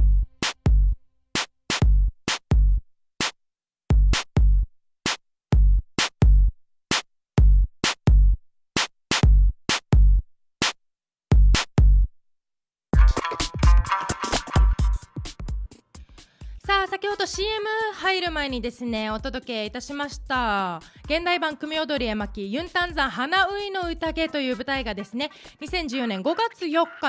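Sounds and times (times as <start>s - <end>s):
electronic drum machine beat: 13.0s - 15.8s, 19.9s - 27.0s
instrumental backing: 13.0s - 15.8s, 22.6s - 27.0s.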